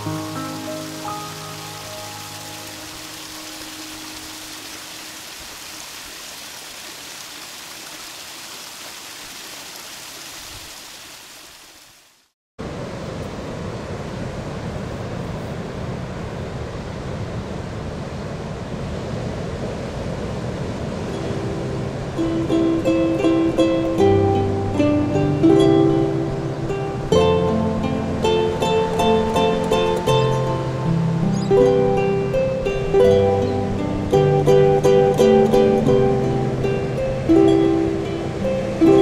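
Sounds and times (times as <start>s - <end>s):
small waterfall splashing: 0.0s - 12.3s.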